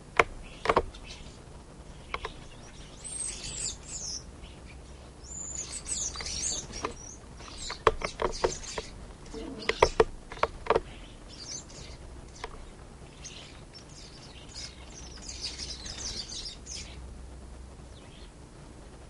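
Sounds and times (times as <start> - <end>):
birds chirping: 0.0 - 17.1, 17.8 - 18.4
sharp clicks: 0.1 - 0.9, 2.1 - 2.4, 6.1 - 10.9.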